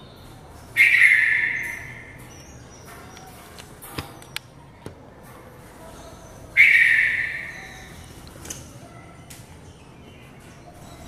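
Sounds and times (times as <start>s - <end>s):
bird harsh call: 0.7s - 2.9s, 6.6s - 8.1s.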